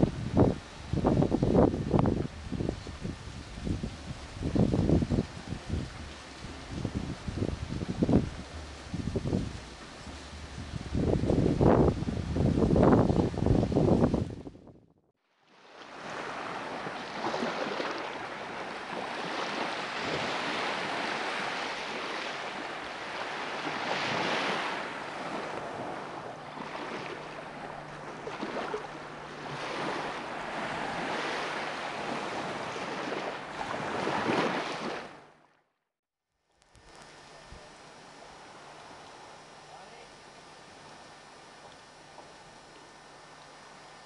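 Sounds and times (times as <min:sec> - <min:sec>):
small waves washing onto sand: 0:15.4 - 0:35.4.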